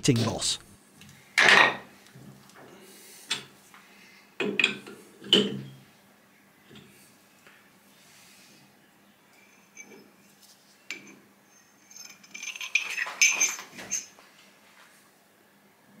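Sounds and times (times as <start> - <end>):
steel parts clinking and rattling: 11.8 - 14.1.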